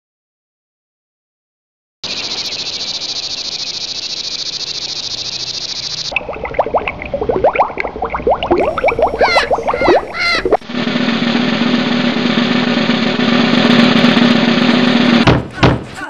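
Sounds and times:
frogs rising chirping calls: 0:02.0 - 0:10.6.

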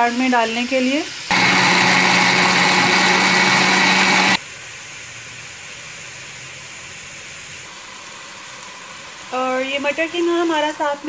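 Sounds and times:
blender motor grinding: 0:01.3 - 0:04.4.

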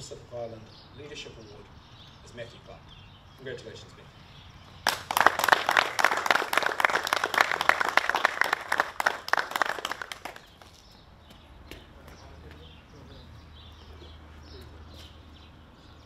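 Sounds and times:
group applauding: 0:04.8 - 0:10.8.

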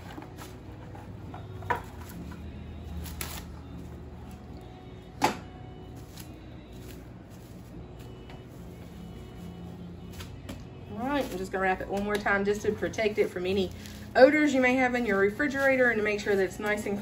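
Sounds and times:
plastic wrap crinkling: 0:05.9 - 0:17.0.

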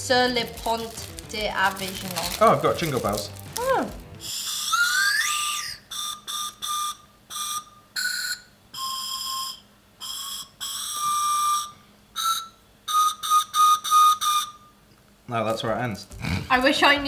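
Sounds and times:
shrill whistle notes: 0:03.6 - 0:14.8.

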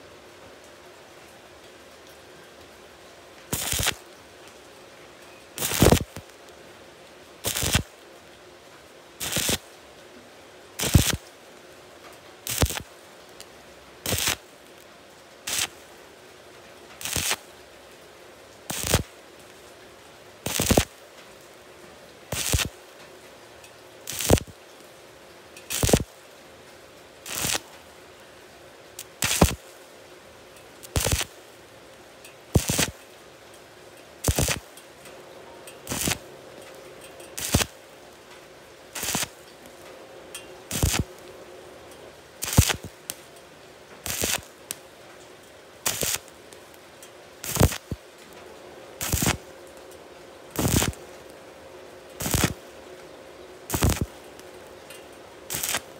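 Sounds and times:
welding arc crackling: 0:03.5 - 0:04.1, 0:05.6 - 0:06.3, 0:07.4 - 0:08.0, 0:09.2 - 0:09.7, 0:10.8 - 0:11.3, 0:12.4 - 0:12.9, 0:14.0 - 0:14.8, 0:15.4 - 0:15.8, 0:16.9 - 0:17.5, 0:18.7 - 0:19.1, 0:20.4 - 0:21.0, 0:22.3 - 0:22.8, 0:24.0 - 0:24.6, 0:25.6 - 0:26.1, 0:27.2 - 0:27.8, 0:29.0 - 0:29.6, 0:30.8 - 0:31.4, 0:32.2 - 0:33.1, 0:34.2 - 0:34.8, 0:35.7 - 0:37.9, 0:38.8 - 0:41.4, 0:42.3 - 0:43.3, 0:44.0 - 0:45.1, 0:45.7 - 0:46.8, 0:47.4 - 0:48.4, 0:49.0 - 0:49.8, 0:50.5 - 0:51.4, 0:52.1 - 0:52.7, 0:53.7 - 0:55.9.

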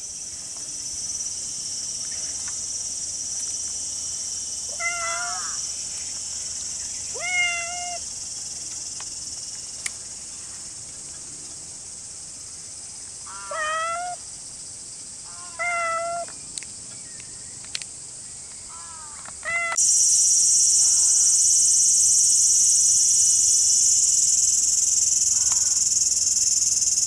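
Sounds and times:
high-pitched insect drone: 0:00.0 - 0:09.8, 0:19.8 - 0:27.0
cat meowing: 0:04.8 - 0:05.5, 0:07.2 - 0:08.0, 0:13.4 - 0:14.2, 0:15.4 - 0:16.3, 0:19.4 - 0:19.8.

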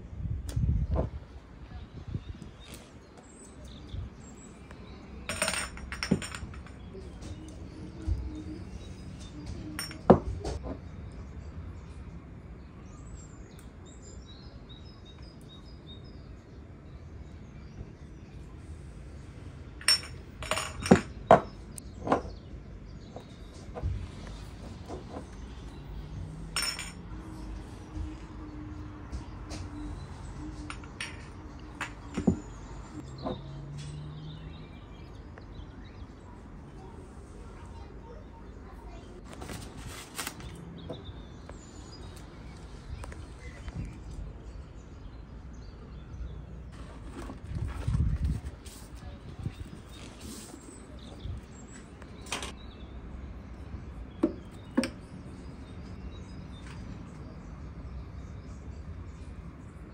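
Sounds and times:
dishes and utensils clinking: 0:05.2 - 0:07.5, 0:09.4 - 0:10.6, 0:19.8 - 0:21.5, 0:26.4 - 0:27.5, 0:29.1 - 0:32.6
scrape or rustle: 0:49.8 - 0:50.9.

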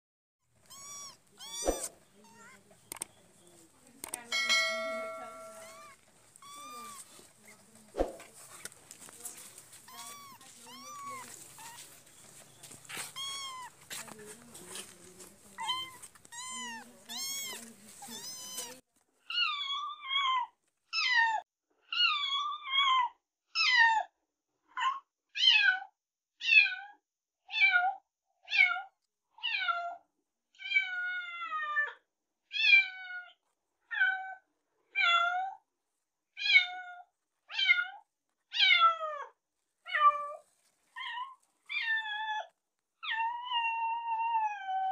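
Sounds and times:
rustling: 0:00.5 - 0:19.2, 0:39.6 - 0:42.2
kittens mewing: 0:00.6 - 0:03.1, 0:04.3 - 0:07.4, 0:09.4 - 0:12.1, 0:12.8 - 0:14.1, 0:14.7 - 0:18.8
clicks: 0:02.9 - 0:03.2, 0:04.0 - 0:04.3.

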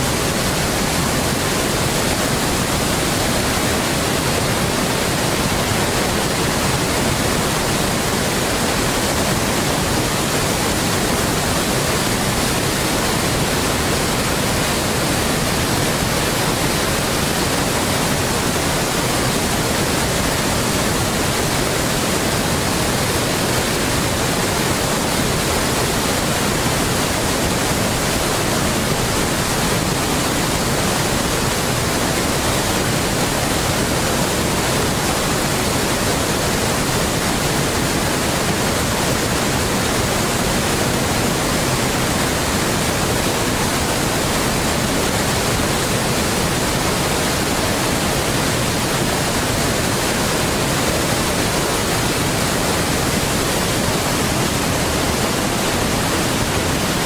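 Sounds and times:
steady broadband hiss: 0:00.0 - 0:57.0.

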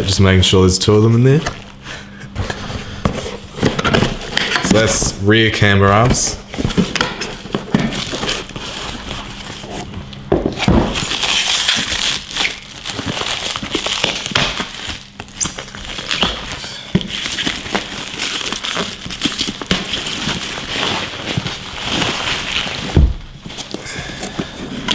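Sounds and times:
plastic packaging crinkling: 0:06.0 - 0:10.3, 0:10.9 - 0:24.9.

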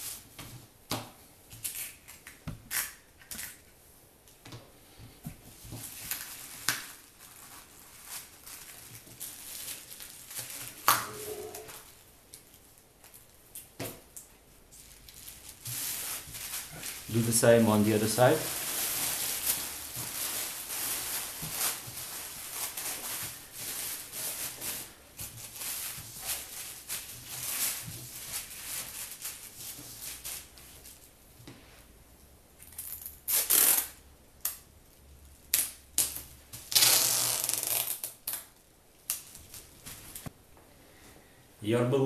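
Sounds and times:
plastic bags crinkling: 0:05.8 - 0:13.3, 0:14.7 - 0:31.1.

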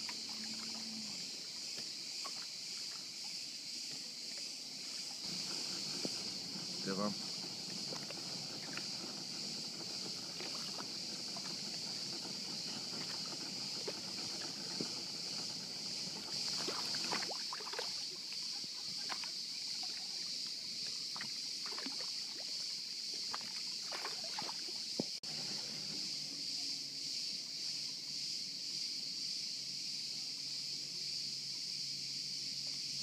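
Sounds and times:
water lapping against boat: 0:00.0 - 0:03.3, 0:04.8 - 0:25.2
cicadas buzzing: 0:00.0 - 0:33.0.

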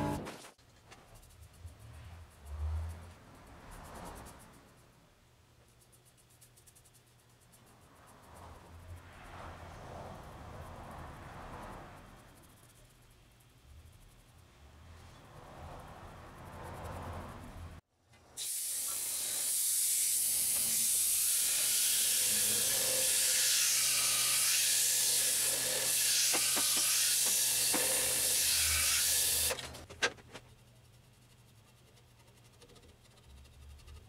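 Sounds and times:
pad hissing against spinning wood: 0:18.4 - 0:29.6.

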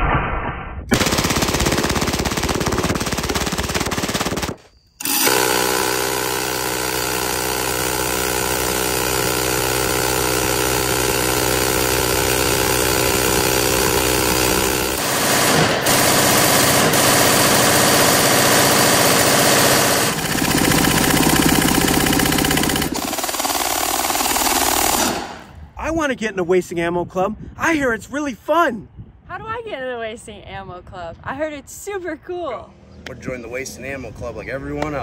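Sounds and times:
submachine gun firing: 0:00.9 - 0:25.5
machine gun firing: 0:00.9 - 0:25.6
minigun firing steady buzz: 0:00.9 - 0:25.6.

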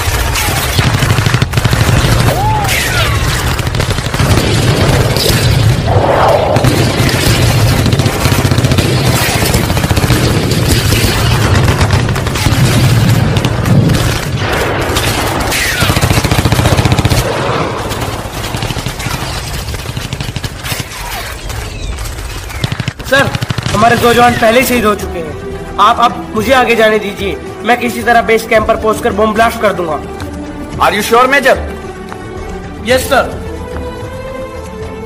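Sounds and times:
booming explosions: 0:00.0 - 0:21.1
machine-gun fire: 0:00.0 - 0:21.5, 0:22.1 - 0:24.4.

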